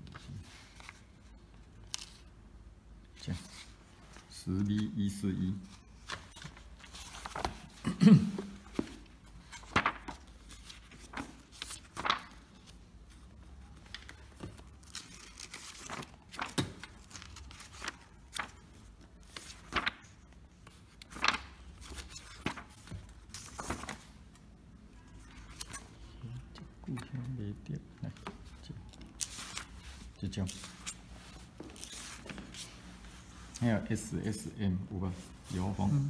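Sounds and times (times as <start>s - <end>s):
paper pages flipping: 0.0s - 2.3s, 5.7s - 7.8s, 8.7s - 24.4s, 25.2s - 25.9s, 28.3s - 33.6s.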